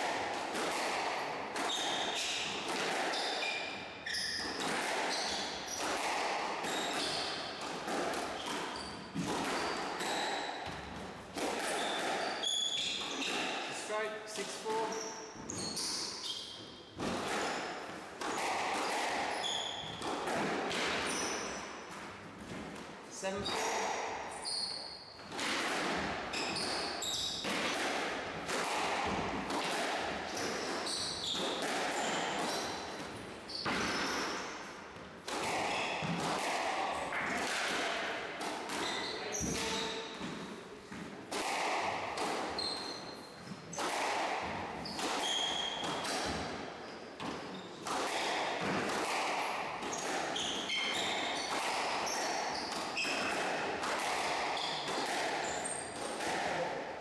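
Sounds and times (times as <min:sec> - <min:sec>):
squash ball hitting rackets and walls: 0:00.0 - 0:57.0
shoes squeaking on wooden floor: 0:03.1 - 0:05.8, 0:11.7 - 0:17.7, 0:19.3 - 0:20.0, 0:30.3 - 0:34.7, 0:38.8 - 0:41.0, 0:42.5 - 0:43.8, 0:44.8 - 0:46.0, 0:49.9 - 0:53.3.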